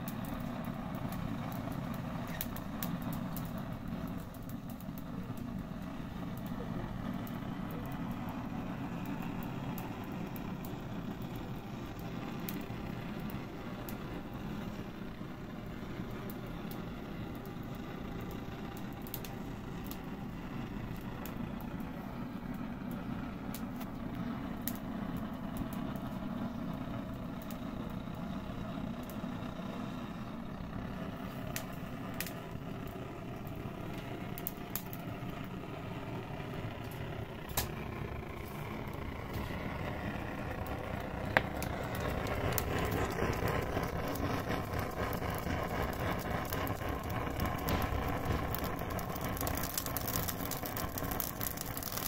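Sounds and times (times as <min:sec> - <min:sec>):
low mechanical hum: 0:00.0 - 0:52.0
wood fire crackling and popping: 0:00.0 - 0:52.0.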